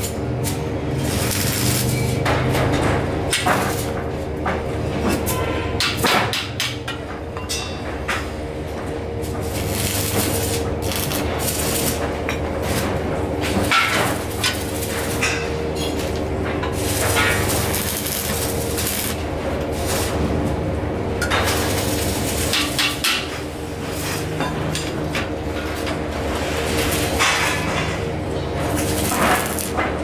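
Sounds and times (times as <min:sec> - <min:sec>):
welding arc crackling: 0:00.0 - 0:04.4, 0:09.1 - 0:24.3, 0:25.4 - 0:27.6, 0:28.6 - 0:30.0
steady hum: 0:07.0 - 0:30.0.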